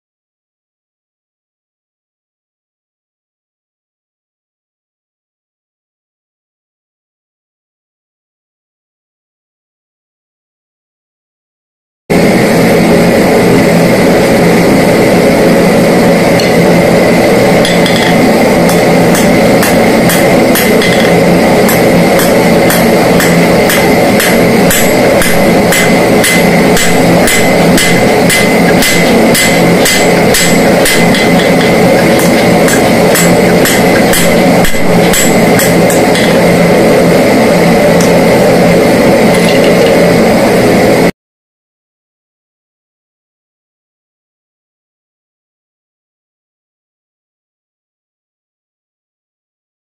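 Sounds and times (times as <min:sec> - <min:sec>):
forge rushing noise: 0:12.1 - 0:41.1
loud steady drone: 0:12.1 - 0:41.1
hammer striking steel on anvil: 0:16.4 - 0:16.7, 0:17.4 - 0:40.1.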